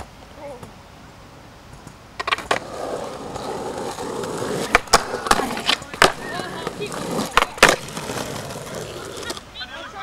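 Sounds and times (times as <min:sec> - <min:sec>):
skateboard wheels rolling: 0:01.7 - 0:10.0
skateboard clacks: 0:01.8 - 0:09.4.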